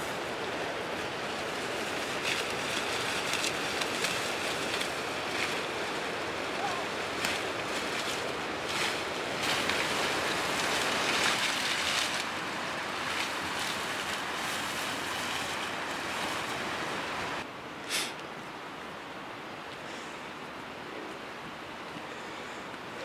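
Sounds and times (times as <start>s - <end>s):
rustling and crunching dry grass: 0.0s - 17.5s
steady rushing outdoor noise: 0.0s - 23.0s.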